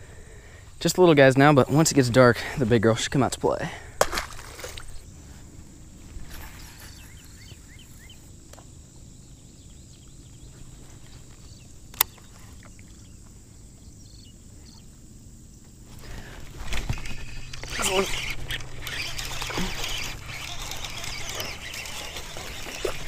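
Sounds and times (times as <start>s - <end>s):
fish splashing into water: 4.0s - 5.0s.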